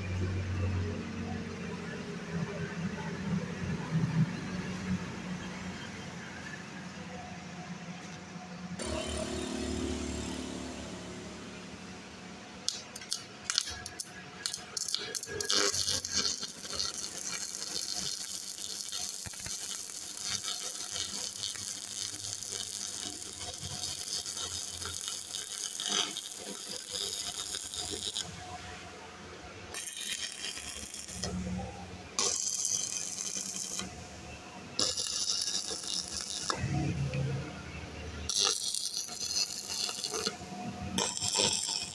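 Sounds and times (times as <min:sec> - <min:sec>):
welding arc crackling and sizzling: 0:08.8 - 0:41.9.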